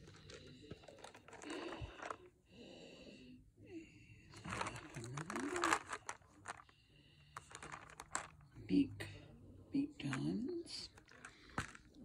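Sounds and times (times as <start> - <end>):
plastic packaging rustling: 0.0 - 2.3, 4.4 - 6.7, 7.4 - 8.5.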